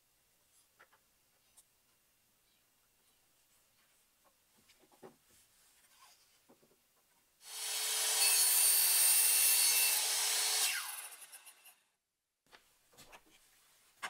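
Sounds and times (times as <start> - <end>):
circular saw cutting wood: 7.4 - 11.8
saw blade winding down whine: 7.5 - 11.7.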